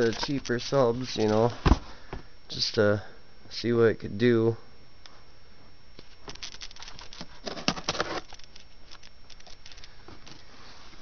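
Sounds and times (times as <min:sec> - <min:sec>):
cardboard box rustling and scraping: 0:07.0 - 0:08.4.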